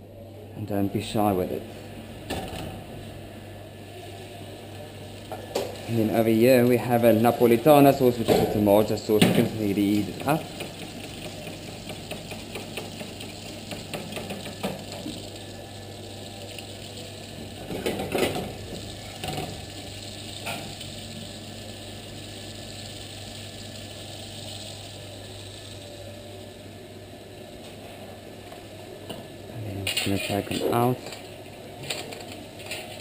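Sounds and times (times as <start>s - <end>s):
steady low hum: 0.0s - 33.0s
butter sizzling in a frying pan: 9.5s - 26.6s.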